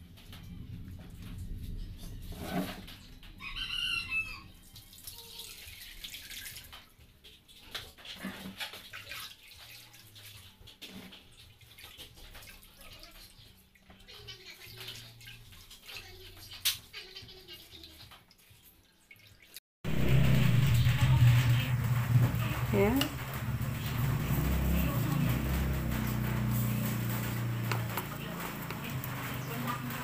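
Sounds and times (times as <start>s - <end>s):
liquid splashing and dripping: 2.8s - 30.0s
rooster crowing: 3.4s - 4.6s
hands squeezing wet coconut: 3.5s - 19.6s, 22.1s - 30.0s.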